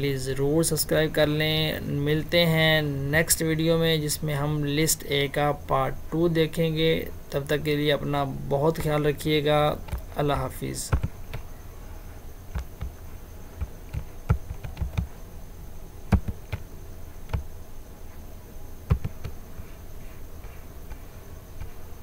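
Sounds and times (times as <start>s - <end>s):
faint high whine: 0.0s - 22.0s
low background hum: 0.0s - 22.0s
small clicks and taps: 18.9s - 19.4s.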